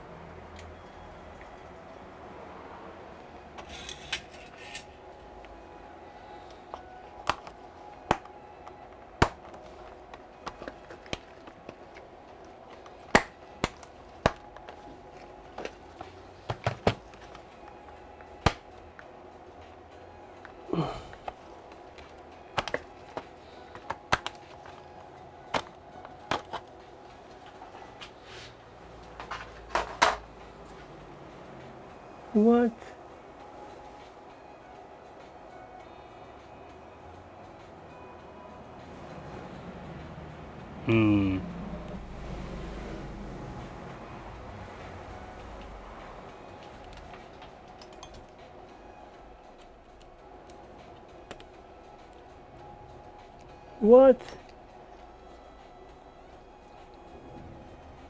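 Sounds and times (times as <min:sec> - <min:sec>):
plastic tool clicking on laptop case: 0:22.0 - 0:24.8
plastic clips snapping loose: 0:22.6 - 0:24.8.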